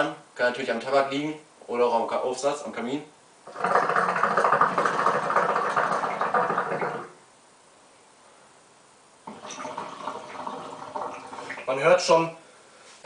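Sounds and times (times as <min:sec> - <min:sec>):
hookah water bubbling: 0:03.4 - 0:07.2, 0:09.2 - 0:12.1.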